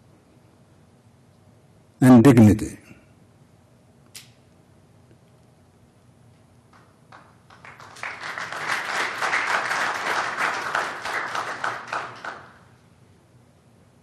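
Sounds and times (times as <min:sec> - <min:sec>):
audience applauding: 0:07.1 - 0:12.7.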